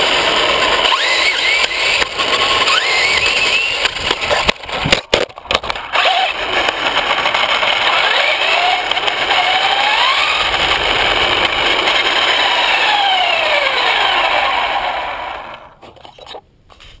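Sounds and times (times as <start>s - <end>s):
electric motor whining: 0.0s - 4.9s, 5.9s - 15.8s
toy truck knocking: 0.0s - 14.2s
loud rushing noise: 5.9s - 15.6s.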